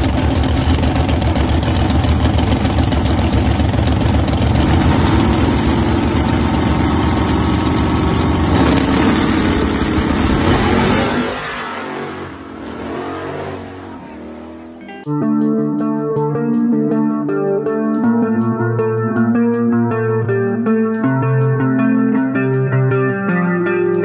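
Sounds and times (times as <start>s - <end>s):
drag car engine running rough: 0.0s - 14.6s.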